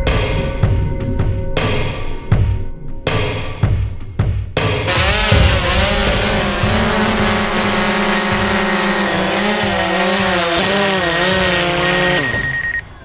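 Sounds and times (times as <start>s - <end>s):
drone propellers whining: 4.9s - 13.0s.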